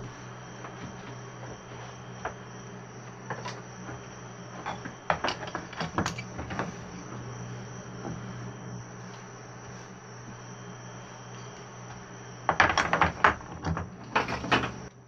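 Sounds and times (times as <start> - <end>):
thin high whine: 0.0 - 12.9
steady low hum: 0.0 - 15.0
brush sweeping sawdust: 6.2 - 12.1.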